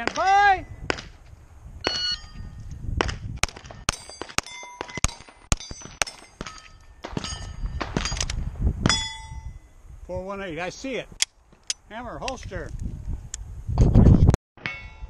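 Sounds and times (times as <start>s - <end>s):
steel plate ringing: 1.9s - 2.6s, 3.9s - 8.2s, 8.9s - 9.8s
pistol shots: 3.0s - 8.4s.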